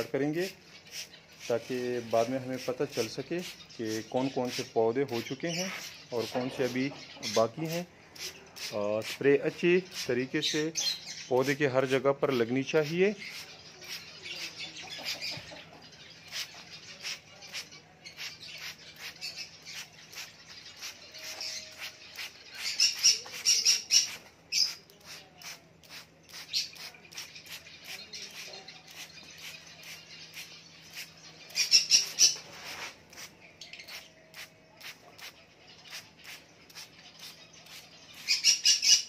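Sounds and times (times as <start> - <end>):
birds squawking and chirping: 0.0 - 39.0
spray bottle hissing puffs: 0.9 - 1.5, 25.1 - 27.6.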